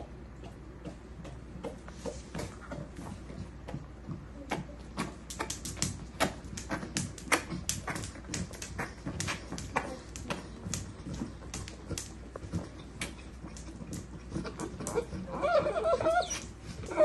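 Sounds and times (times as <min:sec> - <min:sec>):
dog claws clicking on tile: 0:04.6 - 0:15.3.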